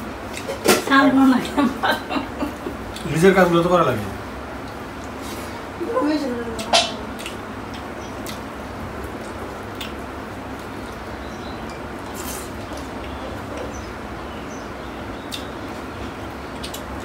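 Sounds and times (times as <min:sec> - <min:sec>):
steady background hiss: 0:00.0 - 0:17.0
wet chewing: 0:06.6 - 0:13.9, 0:15.2 - 0:17.0.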